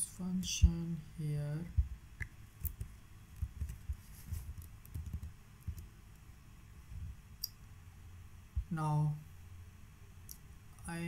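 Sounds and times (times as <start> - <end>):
keyboard typing: 2.6 - 5.9.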